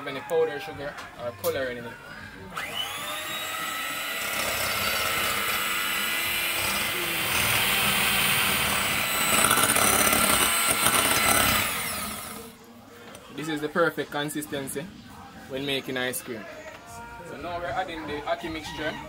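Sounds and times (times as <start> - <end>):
electric hand mixer running: 2.5 - 12.6.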